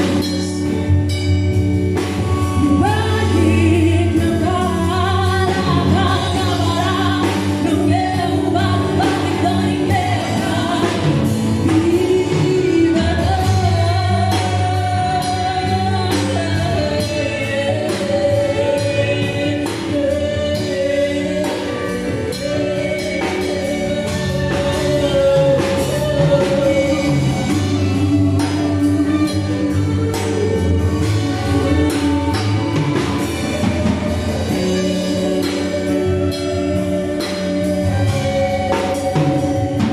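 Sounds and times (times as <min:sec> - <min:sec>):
live band playing slow song: 0:00.0 - 0:39.9
woman singing: 0:00.0 - 0:39.9.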